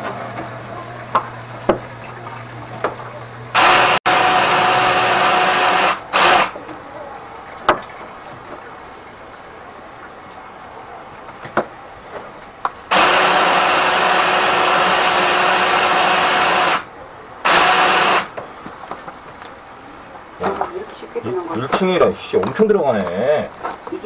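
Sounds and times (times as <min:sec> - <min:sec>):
drain cleaning machine motor whine: 0:00.0 - 0:06.6, 0:12.9 - 0:18.3.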